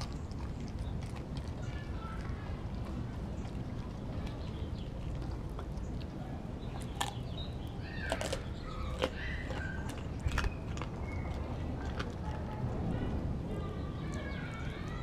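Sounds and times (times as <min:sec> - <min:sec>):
dog chewing raw meat: 0:00.0 - 0:12.9
sharp crunching clicks: 0:04.2 - 0:12.5.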